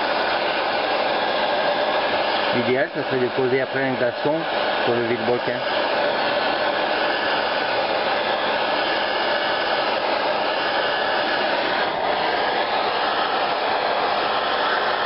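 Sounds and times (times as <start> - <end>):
heat gun blowing: 0.0 - 15.0.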